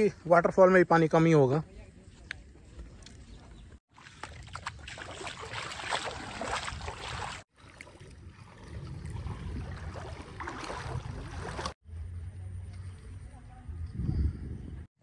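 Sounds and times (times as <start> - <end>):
feet wading through muddy water: 2.9 - 11.8.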